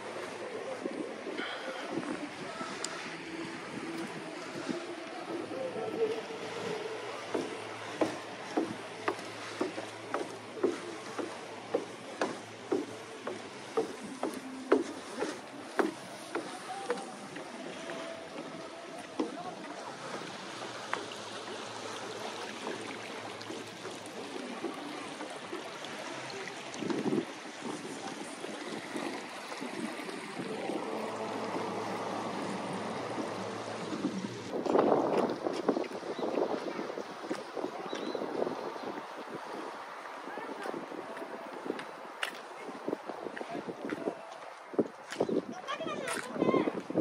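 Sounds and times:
outdoor ambient rush: 0:00.0 - 0:35.6
footsteps walking: 0:00.2 - 0:25.9
floor creaking: 0:07.3 - 0:17.1
low steady engine hum: 0:28.6 - 0:34.6.

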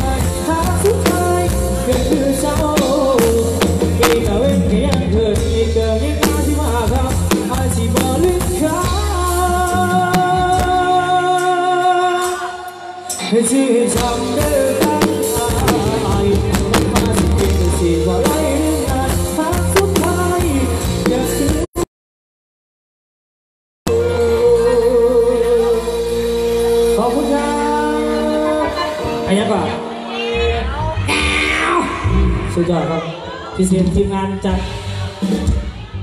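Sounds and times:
loud live band music: 0:00.0 - 0:21.8, 0:23.9 - 0:36.0.

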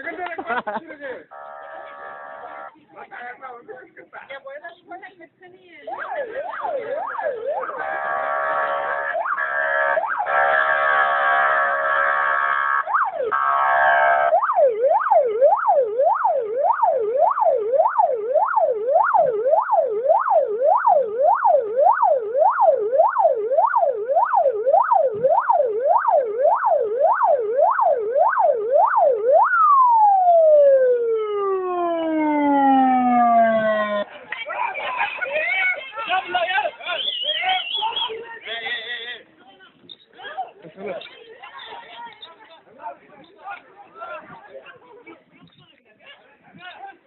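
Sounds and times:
police siren: 0:01.3 - 0:02.7, 0:05.9 - 0:34.1.

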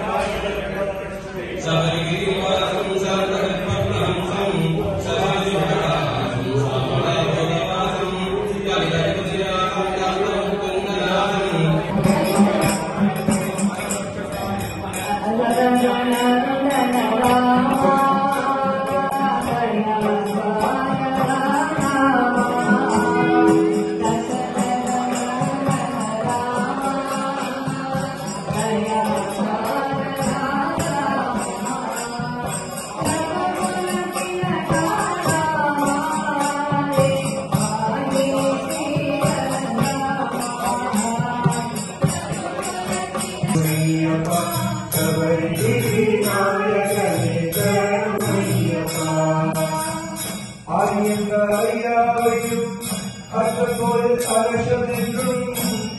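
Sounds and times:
jingling hand percussion: 0:00.0 - 0:55.9
voices chanting a melody: 0:20.4 - 0:26.8.

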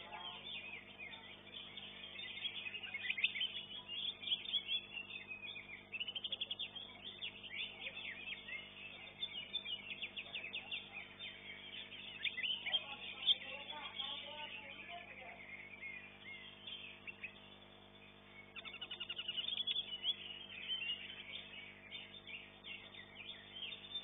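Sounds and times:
birds chirping and trilling: 0:00.0 - 0:24.0.

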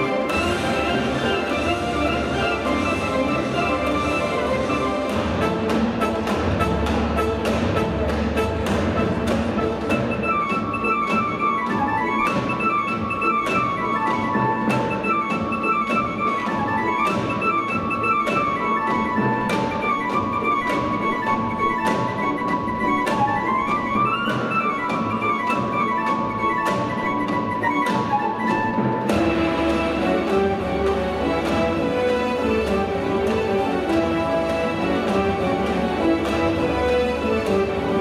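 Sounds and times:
keyboard orchestral arrangement: 0:00.0 - 0:38.0
percussive beat: 0:00.0 - 0:38.0.

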